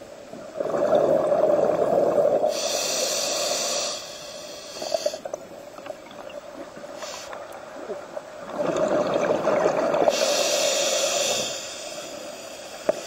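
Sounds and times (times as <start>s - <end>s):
underwater bubbling: 0.0s - 13.0s
faint bubble crackles: 0.4s - 2.6s, 4.9s - 10.3s
regulator hiss: 2.1s - 5.6s, 6.8s - 7.8s, 10.1s - 13.0s.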